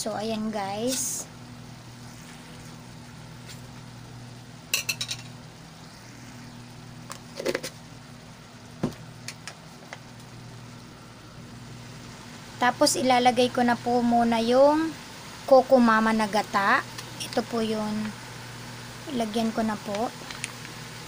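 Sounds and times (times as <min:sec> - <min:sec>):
steady low hum: 0:00.0 - 0:21.0
metal utensil clinking on cookware: 0:04.7 - 0:05.3.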